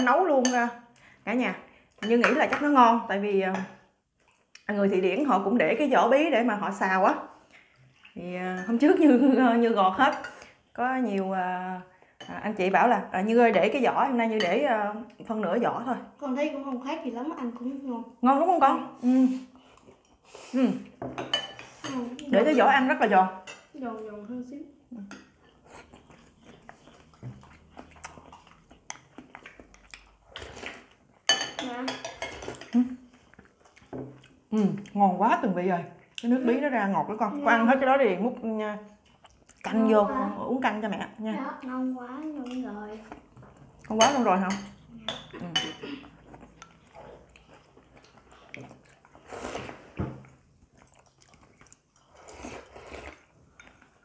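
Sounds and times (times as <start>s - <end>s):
person chewing: 4.1s - 4.7s, 25.4s - 31.4s, 32.2s - 35.0s, 39.0s - 39.7s, 42.4s - 44.0s, 45.9s - 54.0s.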